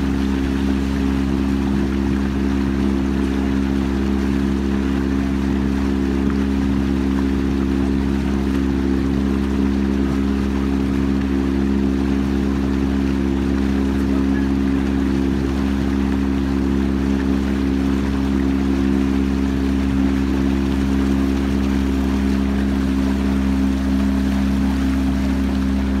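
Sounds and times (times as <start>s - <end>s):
boat motor droning: 0.0s - 26.0s.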